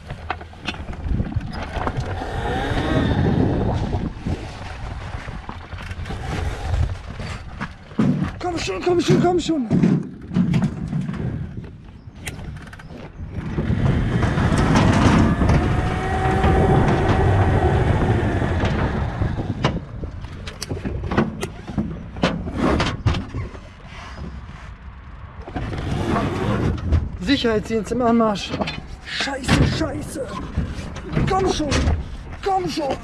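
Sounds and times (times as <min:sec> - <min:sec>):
tyre rumble: 0:00.0 - 0:24.6
electric dirtbike motor whine: 0:01.6 - 0:04.1, 0:13.4 - 0:19.6
sharp knocks and clatters: 0:07.0 - 0:17.6.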